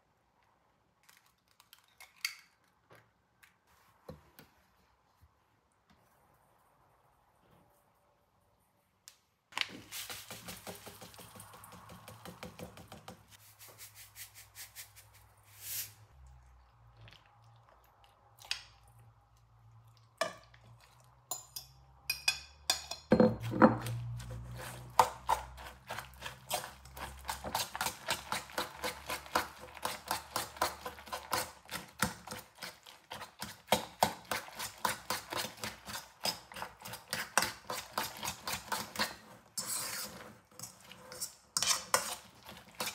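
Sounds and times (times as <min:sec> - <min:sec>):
spoon clinking and scraping bowl: 0:21.3 - 0:32.5, 0:33.1 - 0:42.9.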